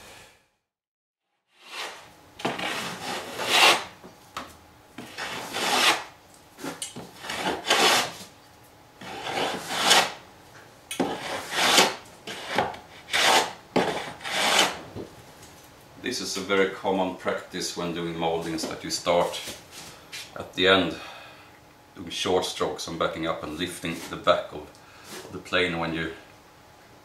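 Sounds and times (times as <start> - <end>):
hand plane shaving wood: 1.6 - 3.9, 5.0 - 8.2, 9.0 - 10.2, 11.0 - 14.8.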